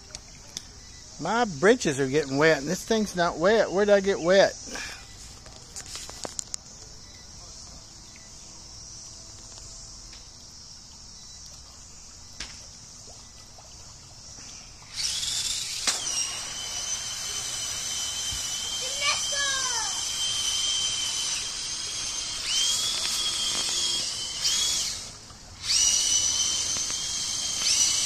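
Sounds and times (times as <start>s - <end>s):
faint insect buzz: 0.0s - 28.0s
churning water: 10.8s - 28.0s
electric motor whine: 14.8s - 28.0s.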